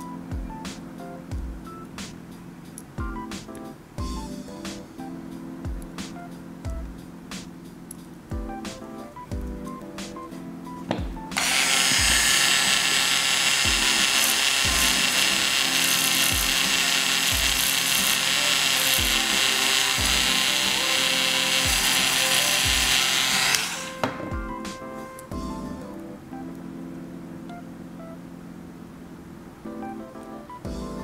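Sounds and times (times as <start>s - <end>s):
background music with steady beat: 0.0s - 31.0s
electric rotary tool running: 11.4s - 24.0s.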